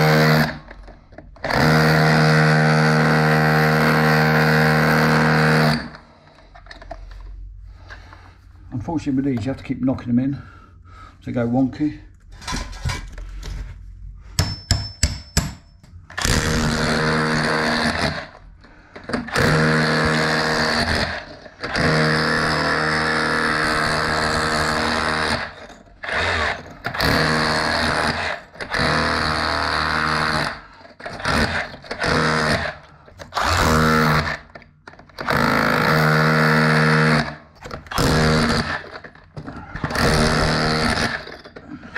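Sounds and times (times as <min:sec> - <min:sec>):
hammer drill chiselling brick: 0:00.0 - 0:06.9, 0:14.4 - 0:41.9
sharp knocks: 0:14.4 - 0:15.8.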